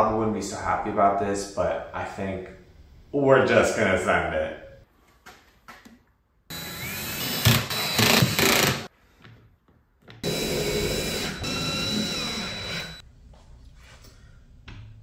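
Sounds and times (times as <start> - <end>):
cordless drill driving screws: 6.5 - 8.9, 10.2 - 13.0.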